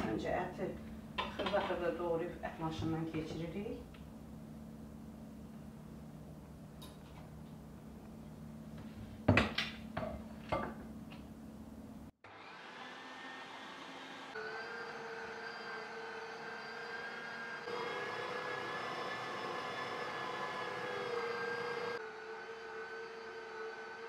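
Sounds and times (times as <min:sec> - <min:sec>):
electric meat grinder whining: 0:12.2 - 0:24.0.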